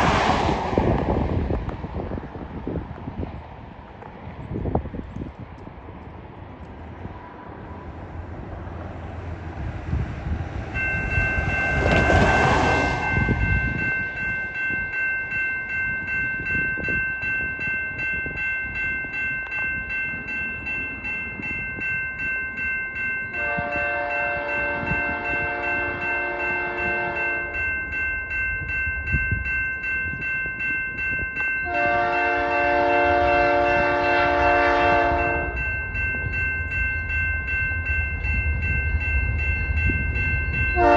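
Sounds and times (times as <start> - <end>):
rushing noise: 0.0 - 2.9
level crossing bell ringing: 10.8 - 34.2, 34.8 - 40.9
locomotive horn blasts: 23.3 - 27.7, 31.6 - 35.7, 40.7 - 40.9.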